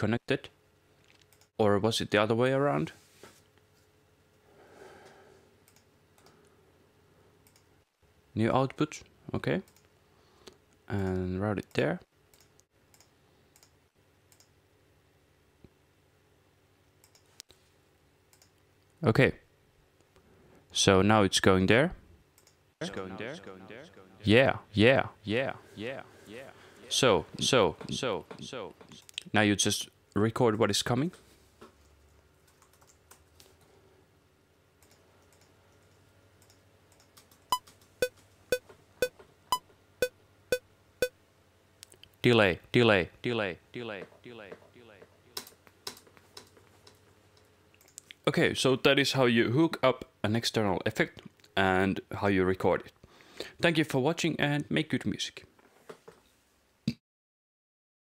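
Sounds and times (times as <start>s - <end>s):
computer mouse clicks: 5.6s - 6.4s, 7.4s - 7.7s, 12.3s - 14.5s, 17.0s - 17.5s, 18.3s - 18.6s, 22.4s - 22.6s, 34.8s - 38.2s
keyboard typing: 32.4s - 33.2s.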